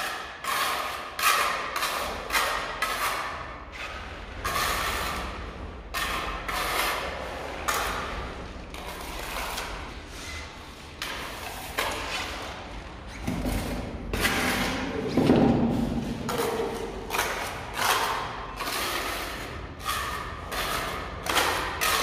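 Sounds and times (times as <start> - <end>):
trowel scraping mortar on concrete: 0.0 - 22.0.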